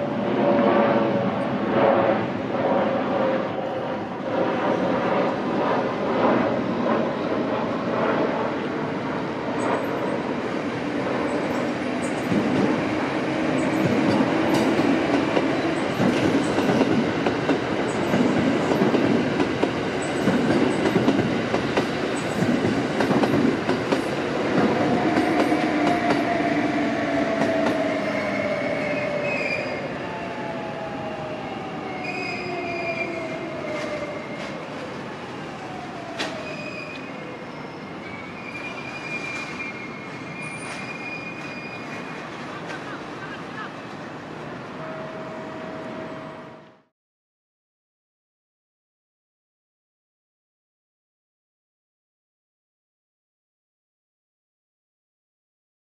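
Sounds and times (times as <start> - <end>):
electric train rumbling past: 0.0 - 46.9
train slowing whine: 0.0 - 46.9
high-pitched wheel squeals: 32.0 - 33.4, 36.4 - 42.2.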